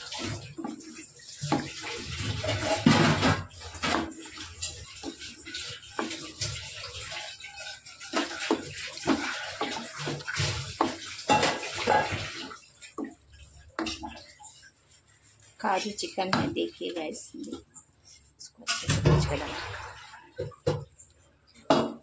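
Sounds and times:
thick sauce stirring and sputtering: 0.0s - 21.7s
spoon scraping and knocking pan: 0.1s - 19.5s.

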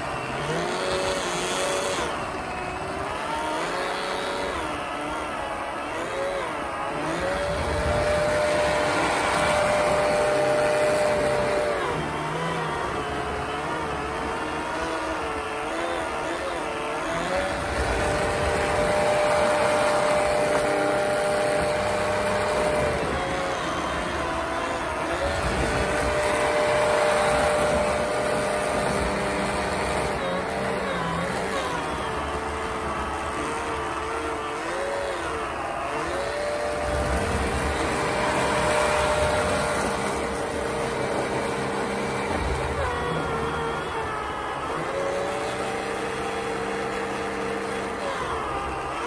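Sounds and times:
electric motor high whine: 0.0s - 49.0s.

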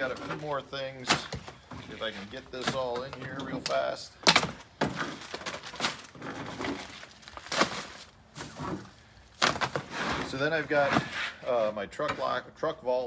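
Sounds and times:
plastic bags crinkling and rustling: 4.8s - 11.1s.

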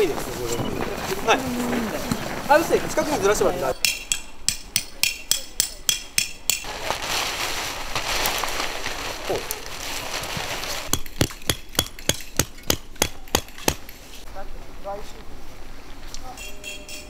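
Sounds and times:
tent fabric rustling: 0.0s - 3.7s, 6.6s - 11.0s
hammer tapping tent stake: 3.8s - 6.7s, 10.9s - 13.9s.

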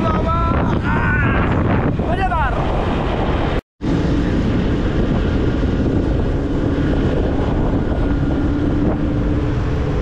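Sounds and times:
wind noise on microphone: 0.0s - 10.0s
scooter engine humming: 3.9s - 10.0s.

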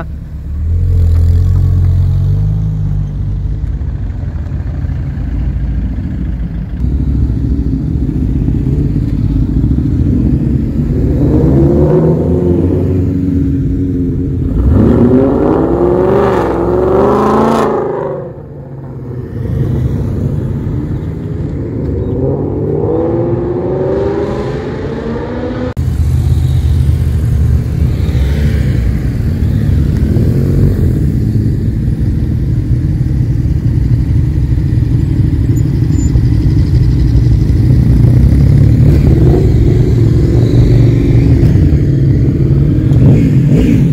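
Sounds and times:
motorcycle trike engine rumble: 0.0s - 11.4s, 25.8s - 43.9s
motorcycles approaching: 0.0s - 43.9s
car accelerating and revving: 6.8s - 32.1s, 37.8s - 43.9s.

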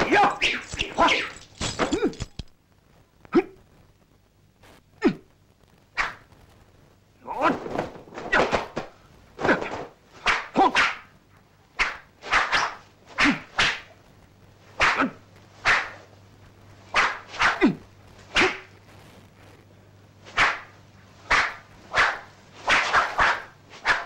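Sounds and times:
sword whooshing through air: 21.3s - 24.0s.

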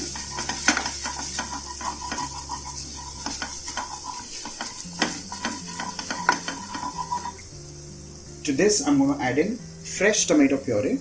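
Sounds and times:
spoon knocking against pan: 0.0s - 7.2s
spoon stirring and scraping pan: 0.0s - 7.5s
frying hiss: 0.0s - 11.0s.

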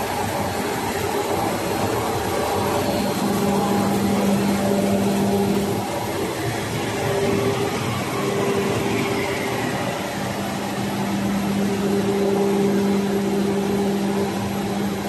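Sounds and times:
lamination machine humming: 0.0s - 15.0s.

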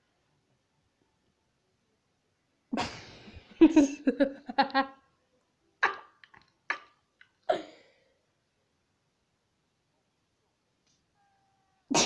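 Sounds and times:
person vocalizing pitched syllables: 5.8s - 6.9s.

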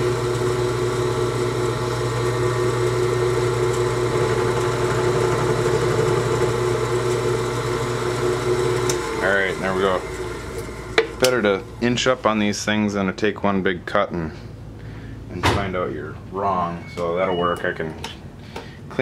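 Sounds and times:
milling machine motor humming: 0.0s - 12.9s.

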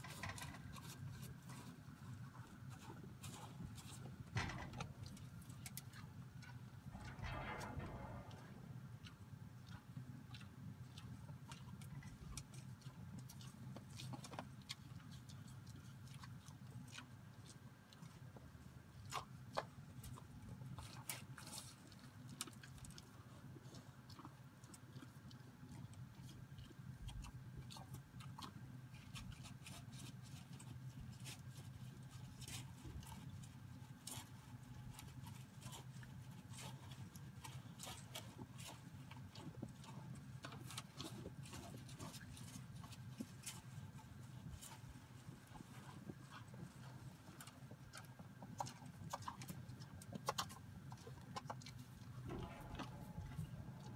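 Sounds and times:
calf crunching grain: 0.0s - 53.9s
low steady rumble: 3.6s - 12.4s, 51.8s - 53.9s
clicks against metal trough: 4.3s - 5.3s, 6.9s - 8.8s, 52.2s - 53.9s.

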